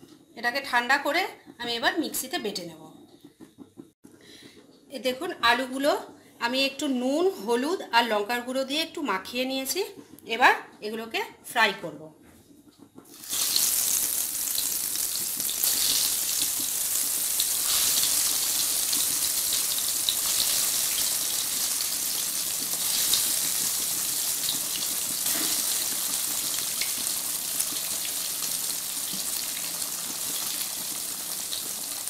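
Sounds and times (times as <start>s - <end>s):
potatoes deep-frying in oil: 13.1s - 32.0s.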